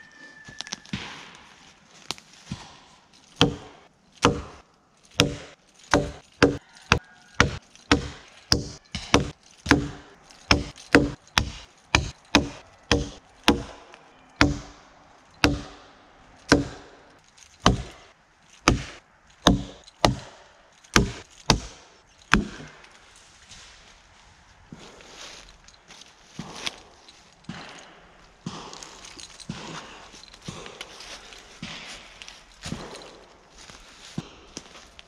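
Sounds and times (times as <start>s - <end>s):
axe chopping wood: 3.4s - 4.6s, 5.2s - 14.8s, 15.4s - 17.0s, 17.6s - 22.8s.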